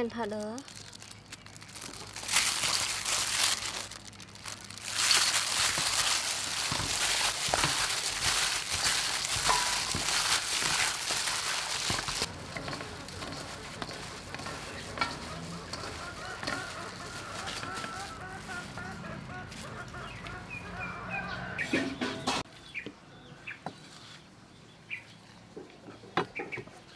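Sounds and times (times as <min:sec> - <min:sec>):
plastic gloves rubbing wet fish: 0:00.0 - 0:20.9.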